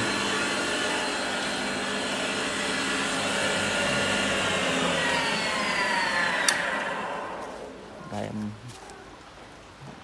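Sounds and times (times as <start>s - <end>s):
planer motor whine: 0.0s - 7.8s.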